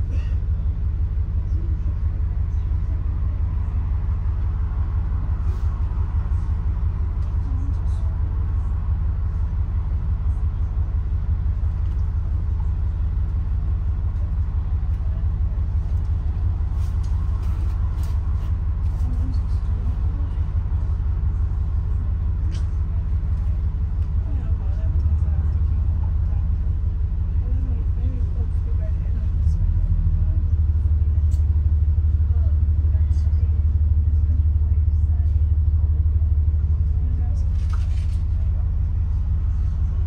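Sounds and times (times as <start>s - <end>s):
bus engine and road noise: 0.0s - 40.0s.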